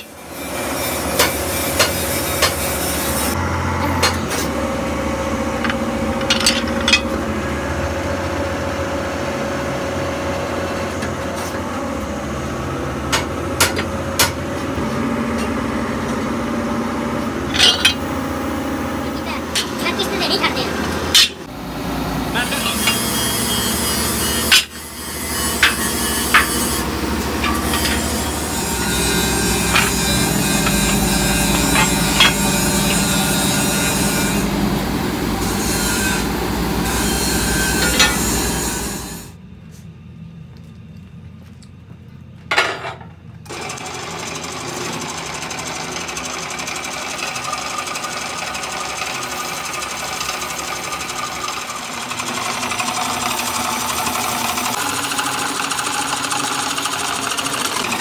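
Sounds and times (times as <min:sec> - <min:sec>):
drill press droning: 0:00.0 - 0:39.5, 0:43.5 - 0:58.0
sharp metal clanks: 0:05.6 - 0:07.2, 0:17.5 - 0:18.1, 0:21.1 - 0:21.5, 0:25.5 - 0:33.1
press humming: 0:25.5 - 0:39.2.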